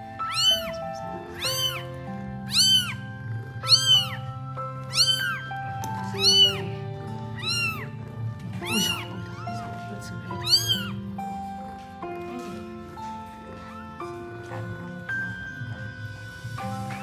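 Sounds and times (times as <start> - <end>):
background music with held notes: 0.0 - 17.0
kitten mewing: 0.2 - 8.0, 8.6 - 11.1.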